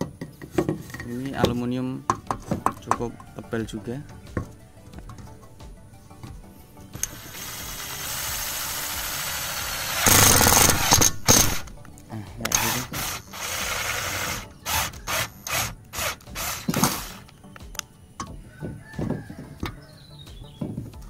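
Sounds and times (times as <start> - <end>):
impact driver drilling into metal: 7.0 - 11.7, 12.5 - 17.2.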